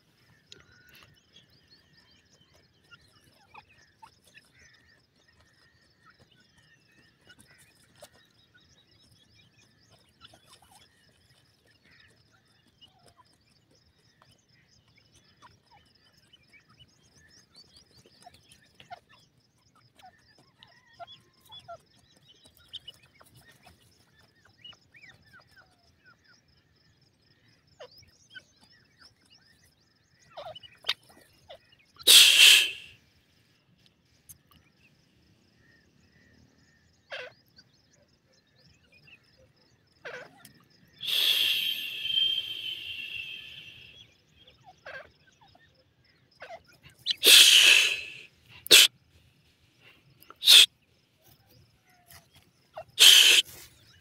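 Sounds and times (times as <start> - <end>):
birds scratching and pecking soil: 0.0 - 33.0, 46.2 - 54.0.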